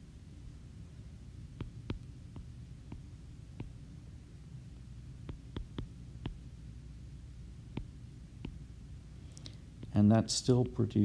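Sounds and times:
low steady hum: 0.0 - 11.0
stylus tapping on glass screen: 1.6 - 3.8, 5.2 - 6.4, 7.7 - 8.6.

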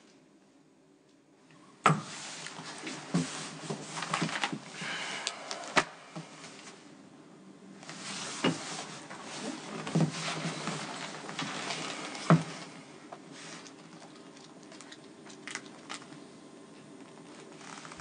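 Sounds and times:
papers rustling: 2.5 - 4.6.

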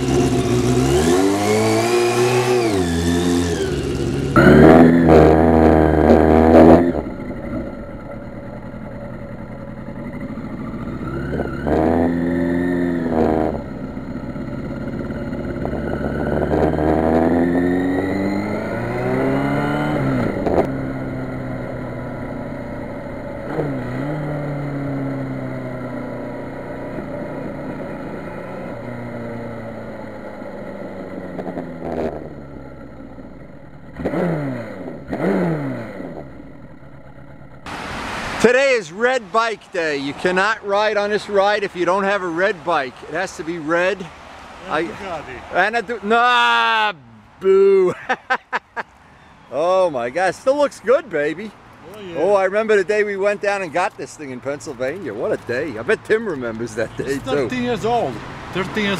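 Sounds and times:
motorcycle engine accelerating: 0.0 - 38.4.

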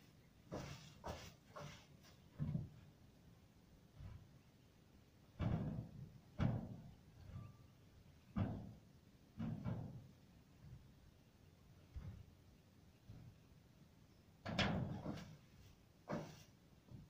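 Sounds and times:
shovel thumping and scraping ash: 14.5 - 16.6.

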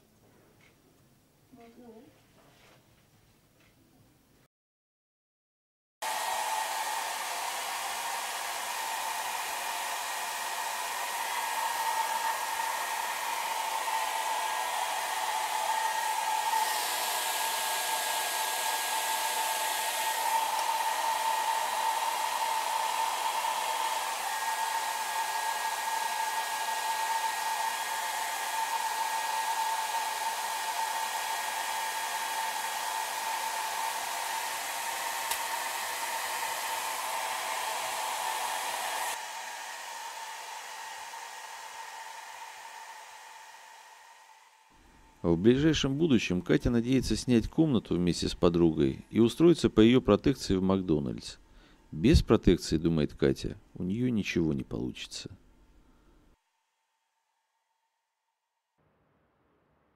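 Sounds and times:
hair dryer blowing: 6.0 - 46.0.

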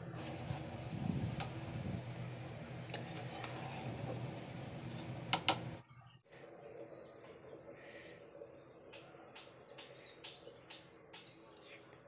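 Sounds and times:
steady low hum: 0.0 - 9.6
spoon scraping rice in a pot: 2.9 - 5.8.

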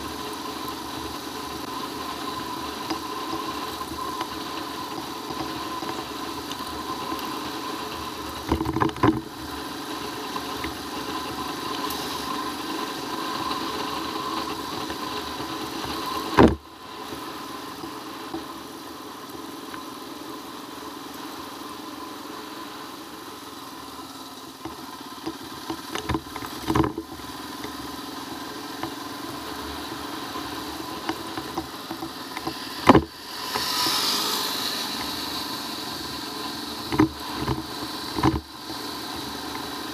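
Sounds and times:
motorcycle engine running: 0.0 - 39.9
passing motorcycle: 0.0 - 39.9
bike knocking over bumps: 31.1 - 33.7, 36.9 - 38.5.

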